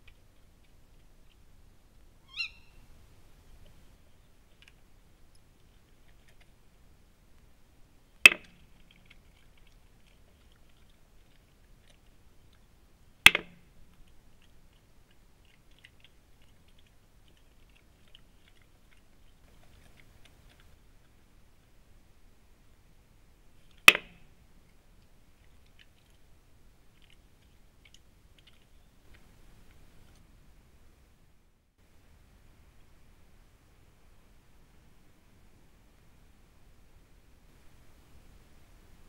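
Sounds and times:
badger chewing: 0:00.0 - 0:02.1, 0:03.0 - 0:23.9, 0:24.6 - 0:30.5.

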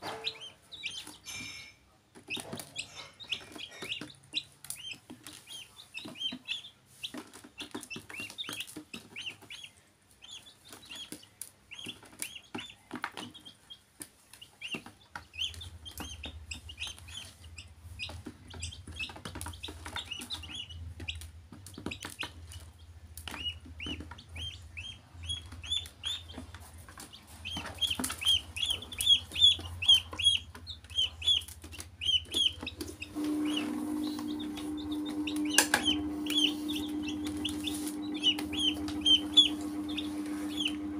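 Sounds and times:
chicks peeping: 0:00.0 - 0:40.9
low hum: 0:32.7 - 0:40.9
clicks of feet on plastic: 0:34.0 - 0:40.9.

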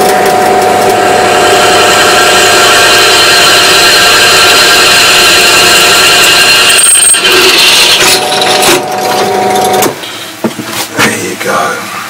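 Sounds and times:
drill cutting whine into steel: 0:00.0 - 0:09.8.

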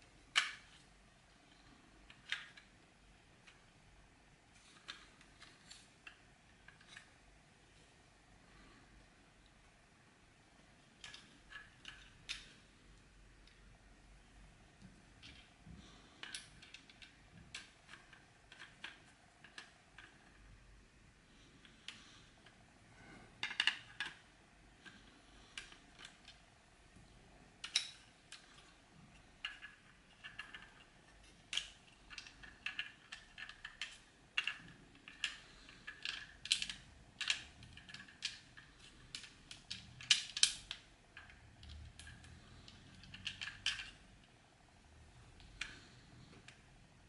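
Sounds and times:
plastic toy parts clicking: 0:00.3 - 0:00.8, 0:02.1 - 0:02.7, 0:16.2 - 0:20.4, 0:23.4 - 0:24.2, 0:24.8 - 0:26.4, 0:27.6 - 0:28.7, 0:29.4 - 0:44.0.

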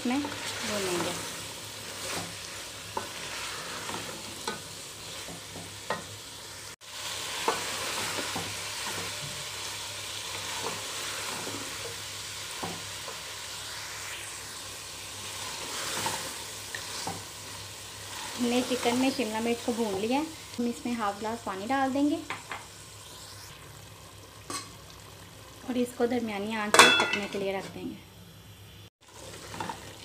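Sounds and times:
food sizzling in a pot: 0:00.0 - 0:30.0
wooden spatula scraping a pot: 0:00.1 - 0:05.6, 0:15.3 - 0:20.1, 0:29.1 - 0:30.0.

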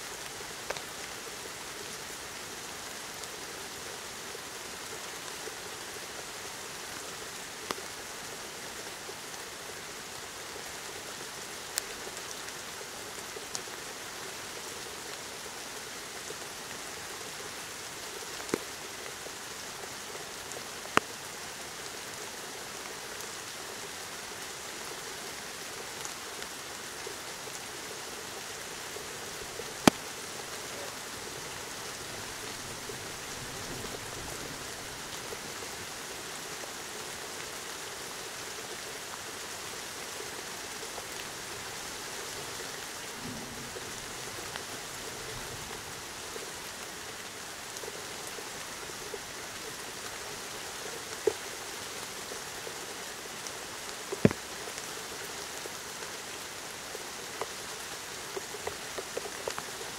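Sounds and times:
steady rain hiss: 0:00.0 - 0:59.9
sharp taps of raindrops: 0:18.4 - 0:18.8, 0:29.5 - 0:31.0, 0:54.2 - 0:54.8.

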